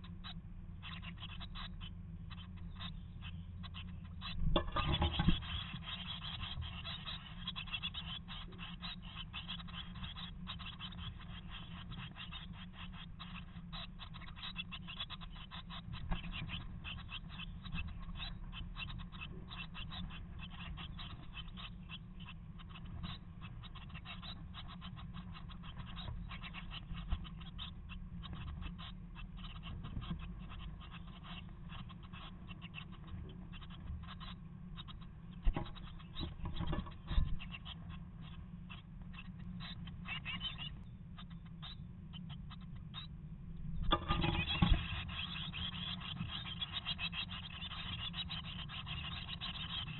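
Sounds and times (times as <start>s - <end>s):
steady low hum: 0.0s - 49.9s
birds scratching in nest: 4.5s - 12.4s, 43.9s - 49.7s.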